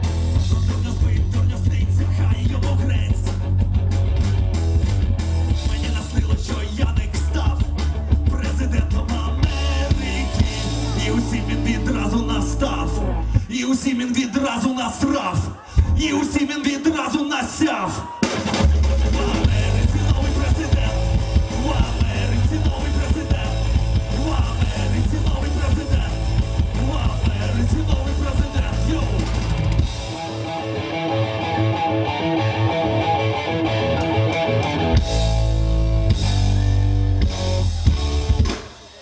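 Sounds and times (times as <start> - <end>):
live rock band playing: 0.0 - 39.0.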